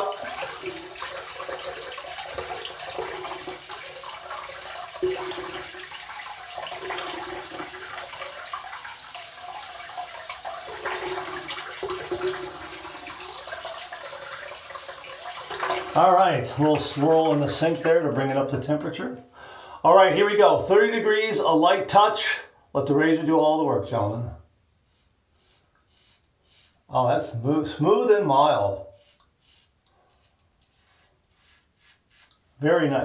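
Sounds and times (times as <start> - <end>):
water splashing in a sink: 0.0 - 18.4.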